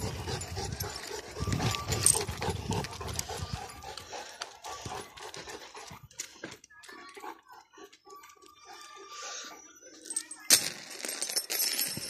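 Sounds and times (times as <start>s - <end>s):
dog panting: 0.0s - 9.6s.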